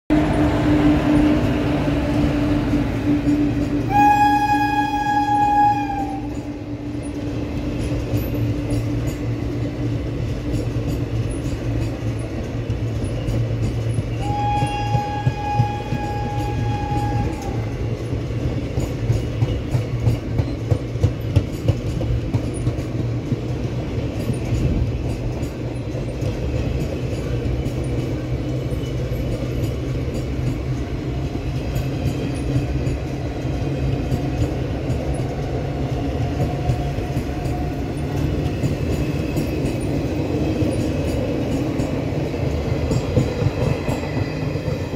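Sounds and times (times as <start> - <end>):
train horn long note: 0.1 - 7.0, 14.2 - 17.8
clickety-clack over rail joints: 0.1 - 44.9
train wheels rumbling on rails: 0.1 - 44.9.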